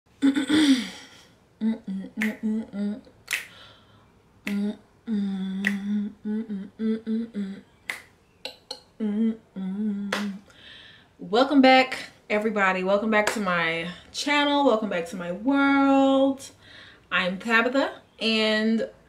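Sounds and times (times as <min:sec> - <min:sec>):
woman humming: 0:00.1 - 0:03.2, 0:04.4 - 0:07.8, 0:08.5 - 0:10.5
fingers snapping: 0:02.2 - 0:02.5, 0:03.2 - 0:03.6, 0:04.4 - 0:04.7, 0:05.6 - 0:05.9, 0:07.9 - 0:08.8, 0:10.1 - 0:10.4.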